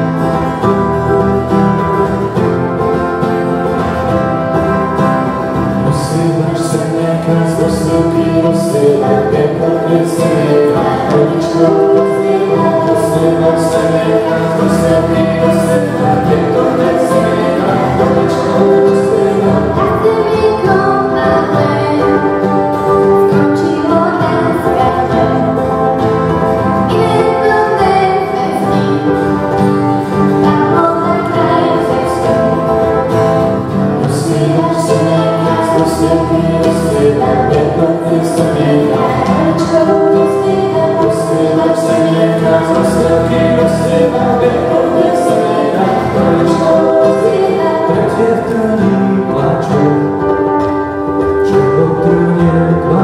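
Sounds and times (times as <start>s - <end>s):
acoustic guitar: 0.0s - 53.0s
ukulele: 0.0s - 53.0s
man singing: 5.5s - 53.0s
woman singing: 6.1s - 25.8s, 26.8s - 33.0s, 34.0s - 50.0s
girl singing harmony: 6.2s - 25.6s, 26.8s - 29.4s, 30.4s - 32.8s, 34.0s - 49.5s.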